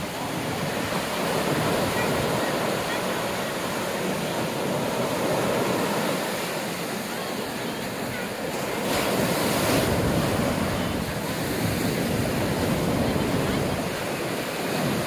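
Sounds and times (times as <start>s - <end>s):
ocean surf rushing: 0.0s - 15.0s
wind buffeting microphone: 8.6s - 15.0s.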